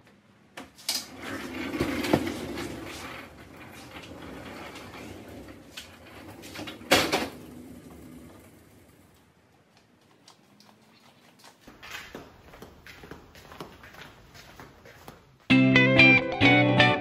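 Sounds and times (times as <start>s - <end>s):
tyres and casters rolling on concrete: 0.8s - 12.4s.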